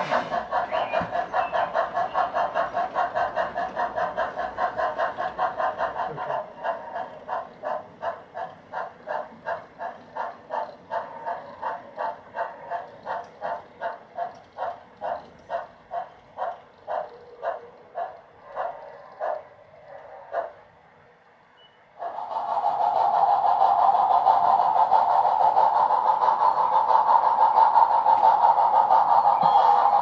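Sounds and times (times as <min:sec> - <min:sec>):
model steam locomotive chuffing: 0:00.0 - 0:30.0.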